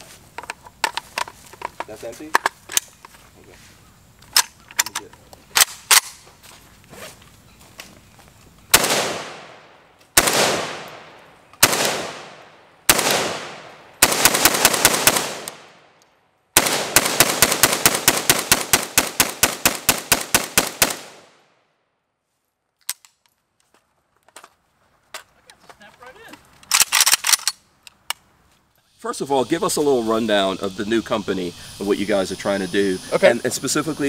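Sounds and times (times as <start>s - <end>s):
rifle shots echoing: 8.7s - 16.0s, 16.6s - 21.4s.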